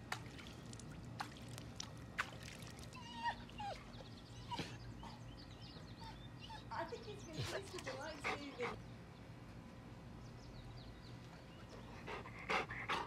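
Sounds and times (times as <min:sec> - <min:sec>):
dog whimpering: 0:03.0 - 0:05.3, 0:06.0 - 0:06.8.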